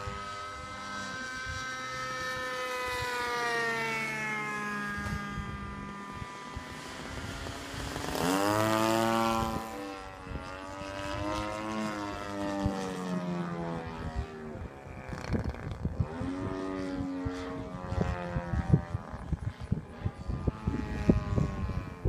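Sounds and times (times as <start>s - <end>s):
model plane engine flying overhead: 0.0s - 22.0s.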